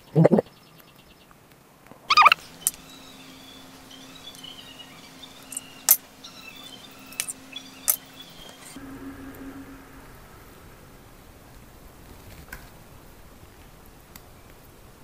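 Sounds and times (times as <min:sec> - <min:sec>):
turkey gobbling: 0:02.1 - 0:08.8
low steady hum: 0:02.1 - 0:14.0.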